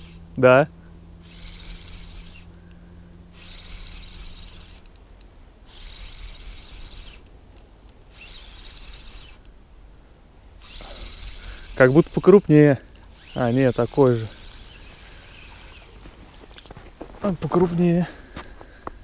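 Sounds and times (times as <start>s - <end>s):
spinning reel whirring: 0.0s - 0.4s, 1.2s - 5.0s, 5.7s - 7.3s, 8.1s - 9.5s, 10.6s - 16.0s.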